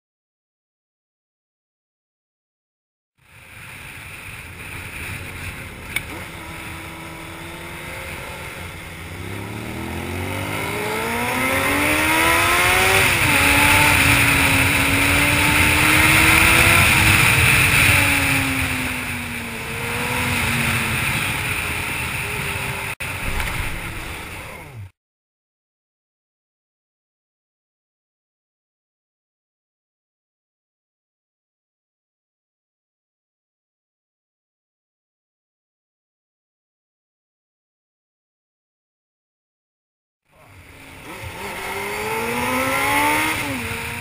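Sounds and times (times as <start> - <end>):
motorcycle engine accelerating: 3.5 - 24.9, 40.4 - 44.0
wind rush on microphone: 12.2 - 24.6.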